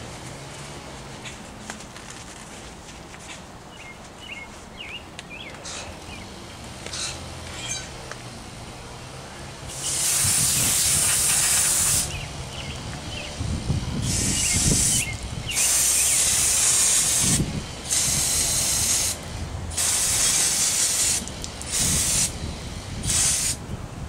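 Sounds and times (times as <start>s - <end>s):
aerosol can spraying: 9.7s - 12.2s, 14.0s - 22.4s, 23.0s - 23.6s.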